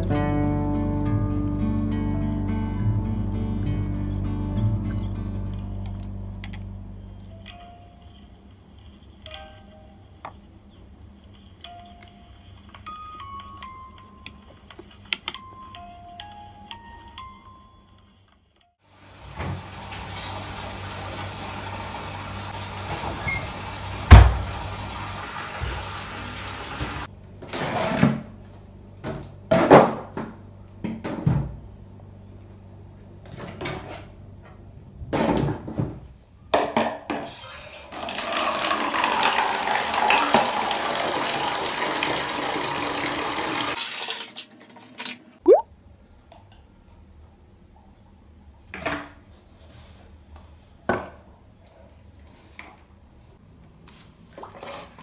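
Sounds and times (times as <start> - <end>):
water running from tap: 19.0 - 27.1, 37.9 - 44.4.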